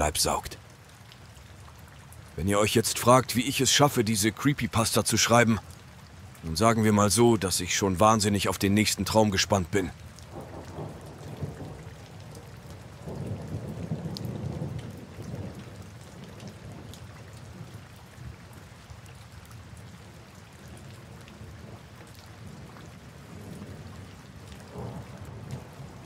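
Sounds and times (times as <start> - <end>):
steady rain: 0.0 - 26.0
low rolling thunder: 10.3 - 17.8, 22.4 - 26.0.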